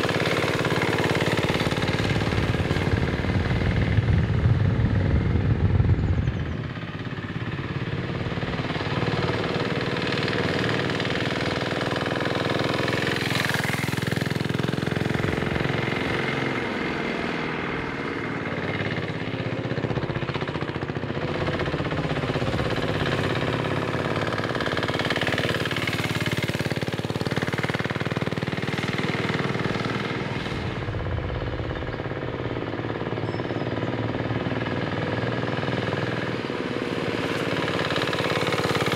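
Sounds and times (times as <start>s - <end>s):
diesel engine clattering: 0.0s - 38.9s.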